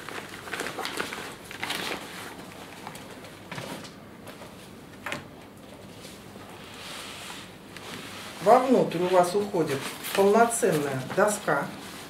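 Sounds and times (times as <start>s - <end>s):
plastic packet and fabric rustling: 0.0s - 3.8s, 8.4s - 12.0s.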